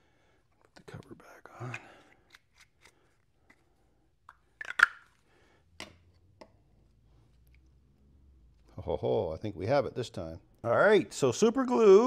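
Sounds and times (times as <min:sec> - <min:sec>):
light clicks of handling objects: 0:00.5 - 0:05.2.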